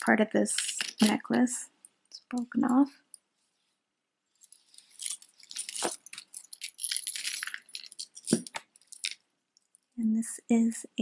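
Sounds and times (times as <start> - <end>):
jewelry clinking and jangling: 4.4 - 9.2.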